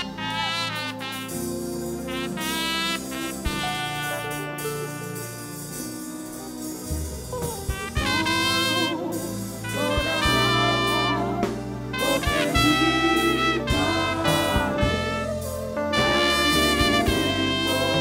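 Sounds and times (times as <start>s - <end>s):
instrumental theme music: 0.0s - 18.0s
drum hits: 12.0s - 15.4s.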